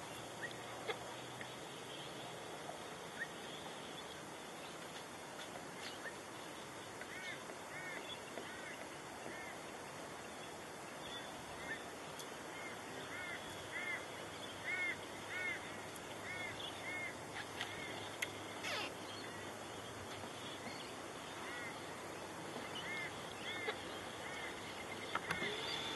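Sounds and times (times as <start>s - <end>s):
steady background hiss: 0.0s - 25.9s
bird calling: 12.5s - 25.9s.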